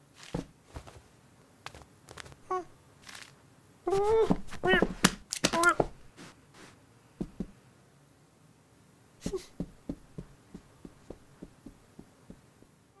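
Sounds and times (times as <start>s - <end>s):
light paw steps: 0.0s - 7.6s, 9.2s - 12.8s
soft paw taps: 7.2s - 7.5s, 9.2s - 12.8s.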